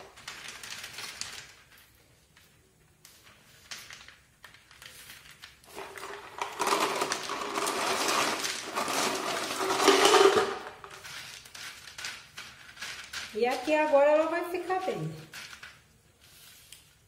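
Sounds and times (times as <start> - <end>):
clay pellets rattling into plastic pot: 5.6 - 15.9.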